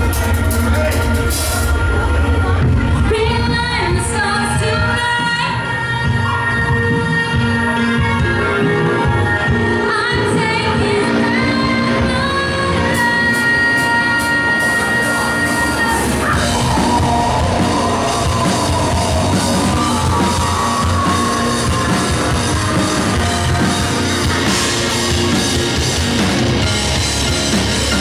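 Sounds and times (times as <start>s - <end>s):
drum kit: 0.0s - 28.0s
electric guitars: 0.0s - 28.0s.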